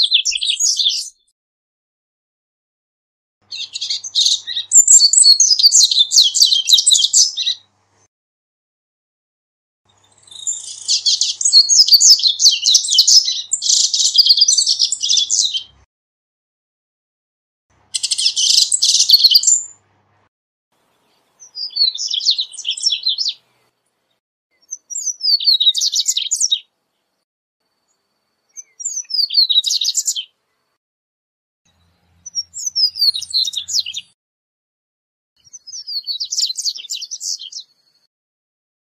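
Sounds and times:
seedeater bird singing: 0.0 - 1.3, 3.4 - 7.7, 9.9 - 15.8, 17.8 - 19.8, 20.8 - 27.1, 27.9 - 30.8, 31.7 - 34.2, 35.4 - 38.1.

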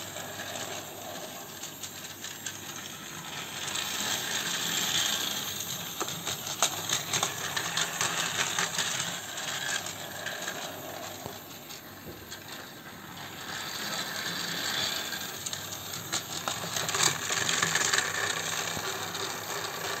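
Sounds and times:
toy train motor whirring: 0.0 - 20.0
wheels clicking over track joints: 13.8 - 20.0.

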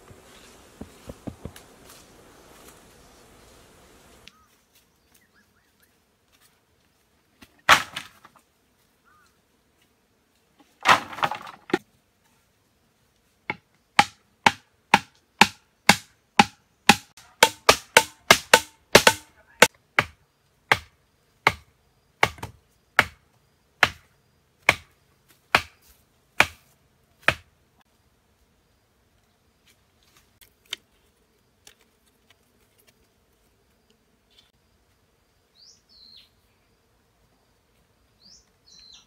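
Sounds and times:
chopping strikes on bamboo: 7.7 - 8.2, 13.5 - 23.2, 23.8 - 27.5.

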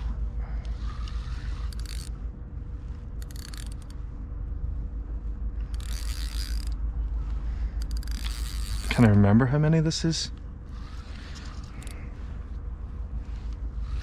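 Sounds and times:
fishing reel gears ticking: 0.6 - 2.2, 3.2 - 4.0, 5.6 - 6.8, 7.8 - 9.2, 10.7 - 12.1, 13.4 - 14.0.

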